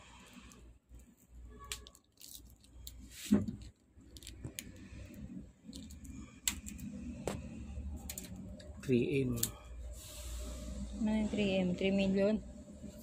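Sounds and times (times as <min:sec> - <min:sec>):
small clicks and crackles: 0:00.4 - 0:06.9.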